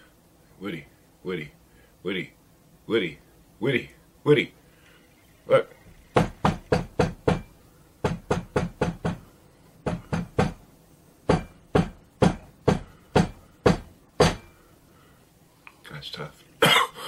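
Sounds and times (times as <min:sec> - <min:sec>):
knuckles knocking on hollow surface: 0:06.1 - 0:09.2, 0:09.8 - 0:10.6, 0:11.3 - 0:14.4.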